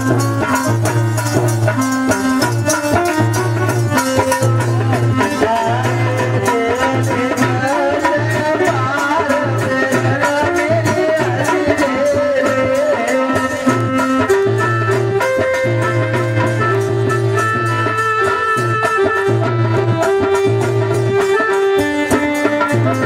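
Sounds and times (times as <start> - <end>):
wavering melody line: 0.0 - 7.8
fast hand drum beat: 0.0 - 23.0
sustained instrumental tones: 0.0 - 23.0.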